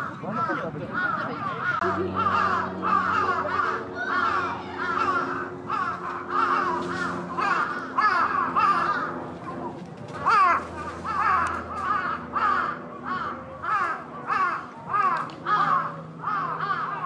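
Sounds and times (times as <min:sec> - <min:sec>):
crows cawing: 0:00.0 - 0:17.0
steady low hum: 0:00.0 - 0:17.0.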